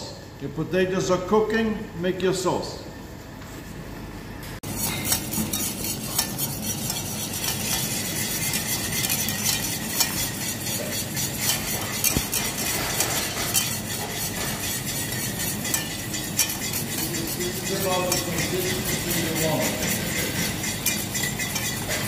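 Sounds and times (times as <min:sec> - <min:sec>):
utensil scraping a pan: 0:04.6 - 0:22.0
utensil clicking against pan: 0:05.0 - 0:22.0.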